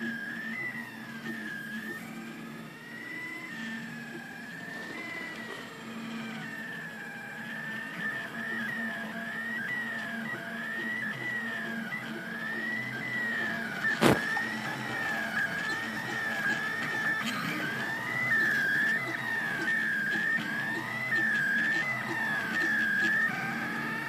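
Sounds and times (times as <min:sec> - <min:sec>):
stepper motors whining: 0:00.0 - 0:24.0.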